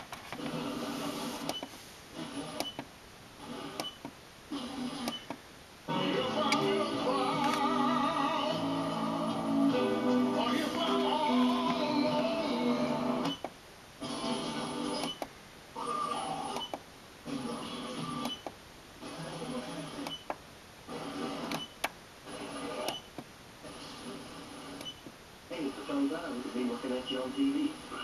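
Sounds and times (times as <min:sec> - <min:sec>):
radio station audio snatches: 0:00.0 - 0:02.7, 0:20.9 - 0:21.6, 0:22.3 - 0:23.0.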